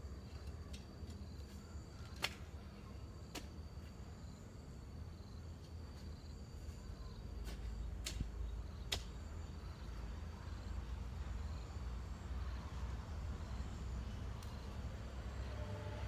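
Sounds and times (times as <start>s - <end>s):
insects chirping: 0.0s - 16.0s
garden hoe striking soil: 7.4s - 9.2s.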